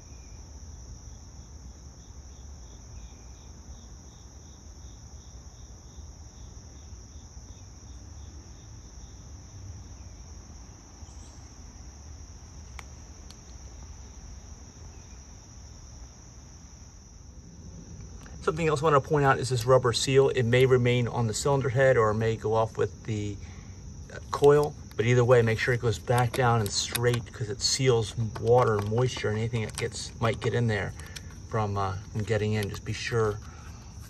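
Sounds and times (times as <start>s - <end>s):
insect trilling: 17.7s - 34.0s.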